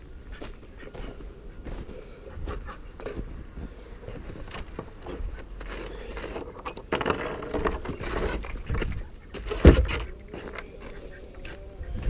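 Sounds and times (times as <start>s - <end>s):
gear knocking and clinking: 6.6s - 8.5s.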